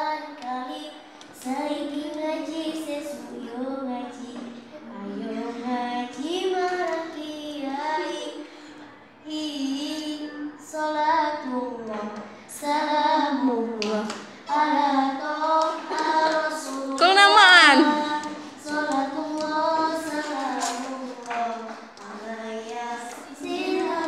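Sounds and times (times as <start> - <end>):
girl singing: 0.0 - 8.4, 9.2 - 24.0.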